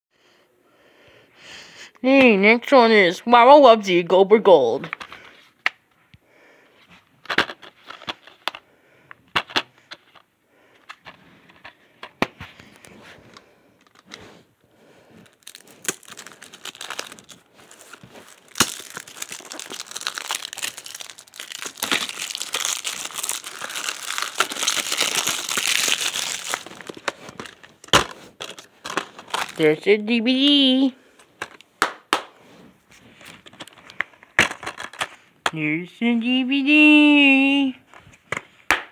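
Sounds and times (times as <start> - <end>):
plastic cases clicking: 7.2 - 12.4, 15.2 - 29.6
plastic wrapping crinkling: 15.2 - 29.8.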